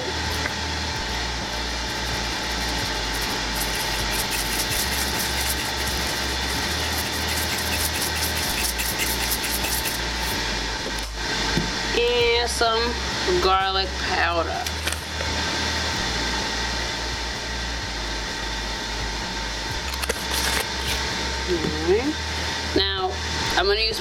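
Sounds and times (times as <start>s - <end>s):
grill fan whirring: 0.0s - 24.0s
salt shaker rattle: 1.8s - 10.4s, 19.9s - 21.0s.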